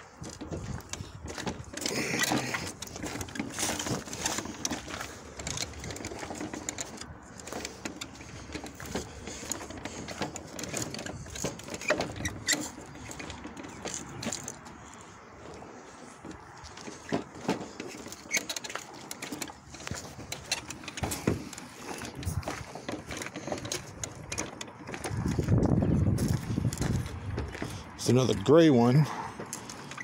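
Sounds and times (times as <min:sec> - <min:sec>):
car parts clicking and rattling: 0:00.0 - 0:30.0
footsteps on gravel: 0:00.0 - 0:30.0.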